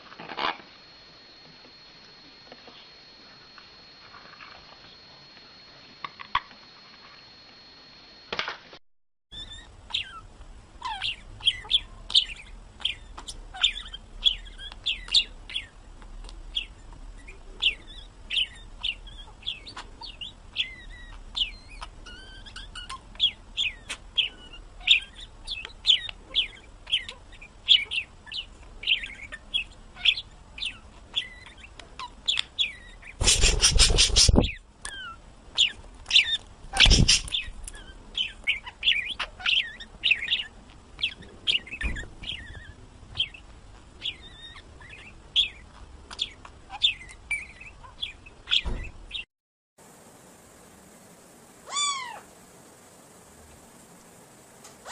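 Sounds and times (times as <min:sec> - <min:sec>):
budgerigar chattering: 0:09.4 - 0:15.7, 0:16.6 - 0:34.6, 0:35.6 - 0:37.5
loud rustling: 0:33.2 - 0:34.5.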